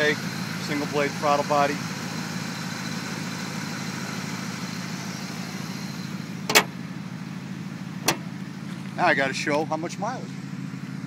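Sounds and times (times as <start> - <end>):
truck engine idling: 0.0 - 11.0
hood slamming shut: 6.4 - 6.8, 8.0 - 8.4.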